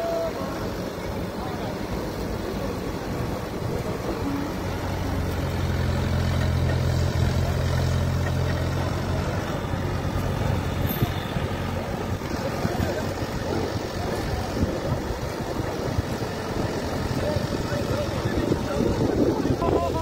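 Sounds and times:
crane diesel engine droning: 0.0 - 20.0.

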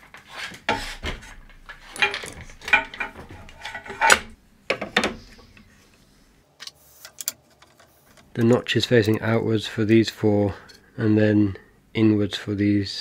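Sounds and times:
metal hardware clinking: 1.5 - 4.4.

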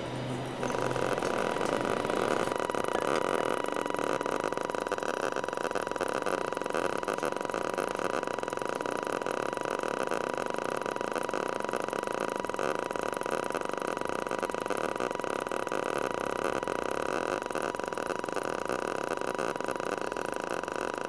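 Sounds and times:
constant high tone: 0.0 - 4.7
electronic drone buzz: 0.0 - 7.9.

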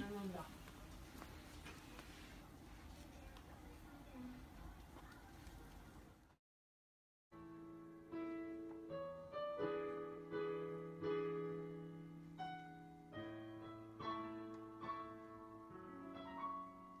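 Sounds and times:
gentle piano melody: 7.4 - 17.0.

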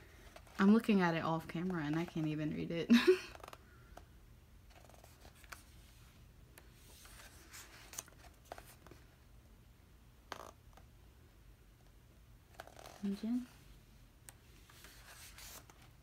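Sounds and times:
book pages rustling and turning: 4.7 - 9.1, 14.3 - 16.0.

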